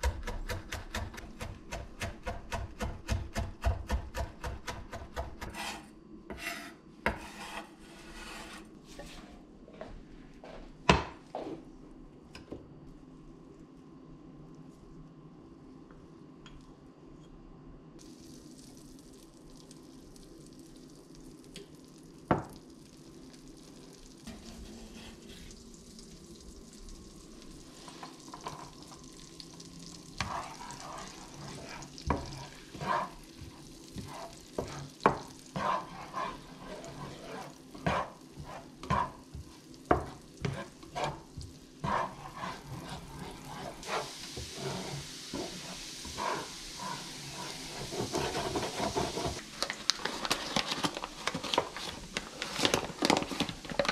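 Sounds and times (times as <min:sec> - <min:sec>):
spatula scraping a pan: 0:05.4 - 0:09.3, 0:24.3 - 0:25.5, 0:30.2 - 0:39.4, 0:40.0 - 0:49.4
butter and garlic sizzling: 0:18.0 - 0:53.9.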